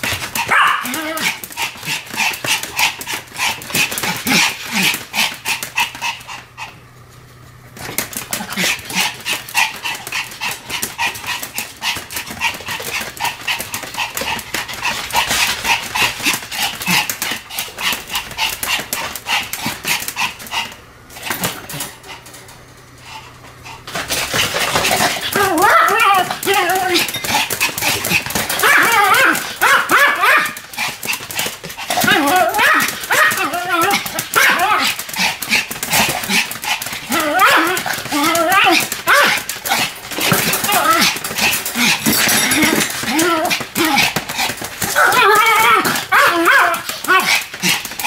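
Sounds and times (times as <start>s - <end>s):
small dog barking rapidly: 0.4s - 3.0s, 24.9s - 31.0s, 31.8s - 42.0s, 44.8s - 47.9s.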